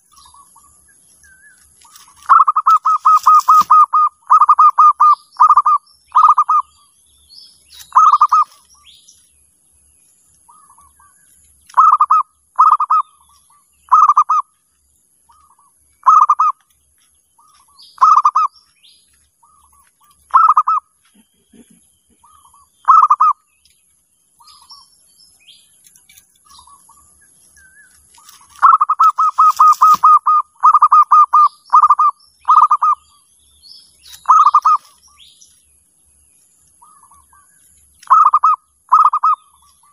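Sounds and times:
small birds chirping: 0:00.0 - 0:39.9
doves cooing: 0:01.9 - 0:06.8, 0:07.8 - 0:08.6, 0:11.7 - 0:14.5, 0:15.3 - 0:16.6, 0:17.4 - 0:18.6, 0:19.4 - 0:23.4, 0:28.2 - 0:33.0, 0:34.2 - 0:35.0, 0:36.8 - 0:39.9.

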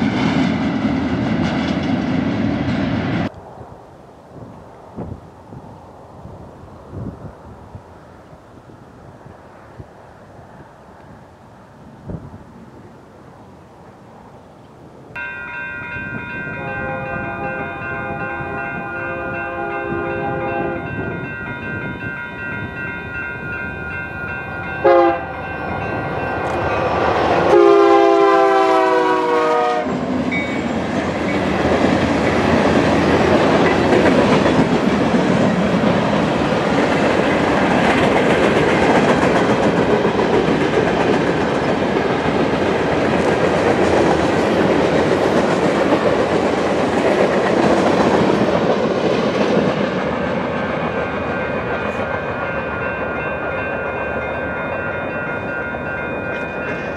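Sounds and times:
locomotive air horn: 0:16.6 - 0:21.0, 0:24.8 - 0:25.5, 0:27.4 - 0:30.0.

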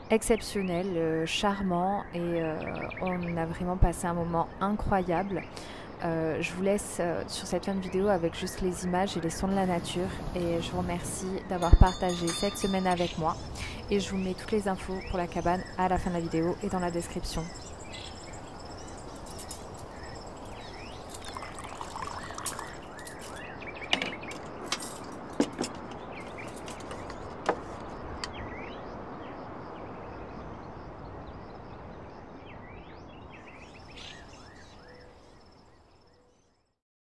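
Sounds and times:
small birds chirping: 0:00.3 - 0:29.4, 0:32.4 - 0:36.6
high insect drone: 0:09.2 - 0:23.5
sharp clinks: 0:11.6 - 0:13.9, 0:16.5 - 0:23.4.

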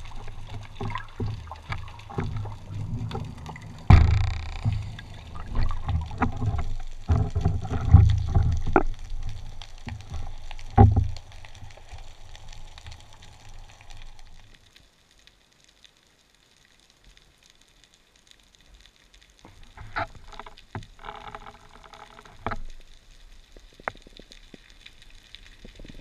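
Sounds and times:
muffled underwater sound: 0:00.0 - 0:14.5.

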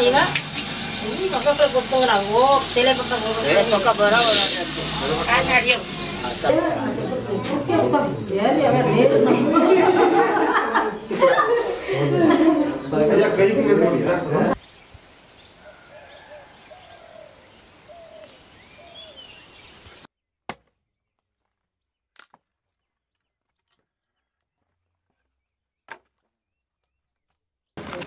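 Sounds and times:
birds chirping: 0:00.0 - 0:08.2, 0:10.4 - 0:11.6, 0:13.6 - 0:20.1
axe splitting firewood: 0:20.5 - 0:25.2, 0:25.9 - 0:28.0.

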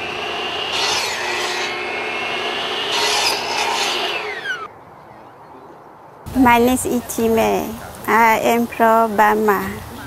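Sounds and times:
power saw cutting wood: 0:00.0 - 0:04.7.

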